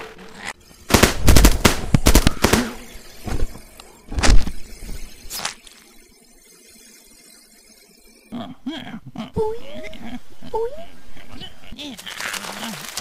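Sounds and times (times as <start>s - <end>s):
cartoon gunshots: 0.9s - 2.9s.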